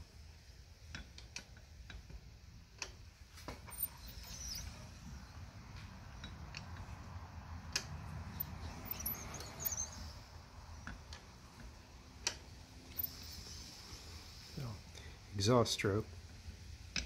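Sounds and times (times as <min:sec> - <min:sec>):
faint high squeaks: 0:03.5 - 0:05.4, 0:08.3 - 0:10.3, 0:12.8 - 0:14.2
mechanical clicks and creaks: 0:03.6 - 0:04.8, 0:07.6 - 0:10.1, 0:10.8 - 0:13.6.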